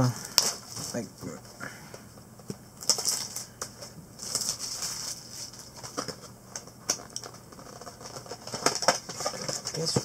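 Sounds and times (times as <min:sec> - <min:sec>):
foil packs rustling: 0:00.2 - 0:01.6, 0:02.8 - 0:10.0.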